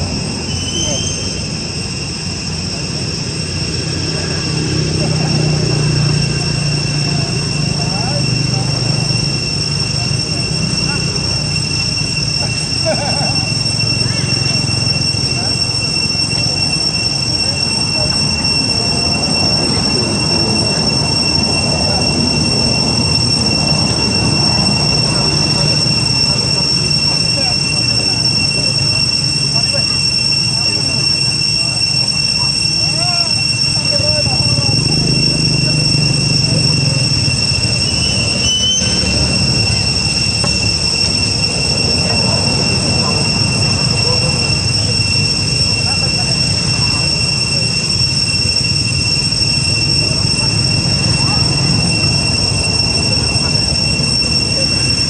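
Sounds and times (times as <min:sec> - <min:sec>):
cicadas droning: 0:00.0 - 0:55.0
high-pitched whine: 0:00.0 - 0:55.0.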